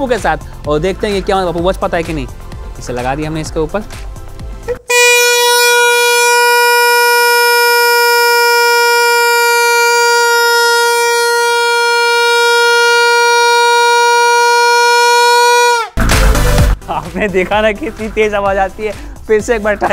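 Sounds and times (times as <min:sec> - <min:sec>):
steady plastic horn note: 0:04.7 - 0:16.0.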